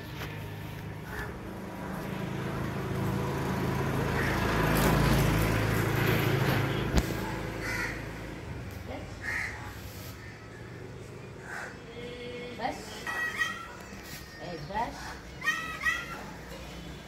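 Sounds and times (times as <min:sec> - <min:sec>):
vehicle engine passing by: 0:00.0 - 0:11.4
crow cawing: 0:04.2 - 0:04.4, 0:07.6 - 0:08.1, 0:09.2 - 0:10.4, 0:11.4 - 0:11.8.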